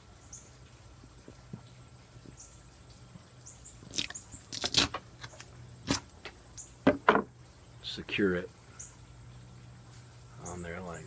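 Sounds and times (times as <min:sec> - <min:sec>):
duct tape ripping: 0:03.9 - 0:06.2.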